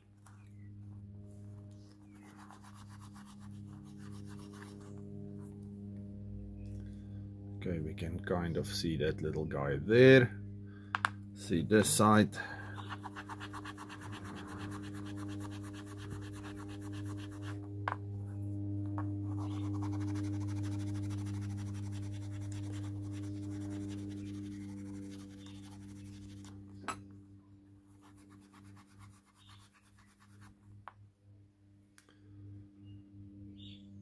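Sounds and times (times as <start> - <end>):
low hum: 0.0 - 29.2, 30.0 - 34.0
bone piece scratchy rubbing: 2.0 - 5.0, 12.8 - 18.0, 19.2 - 26.6.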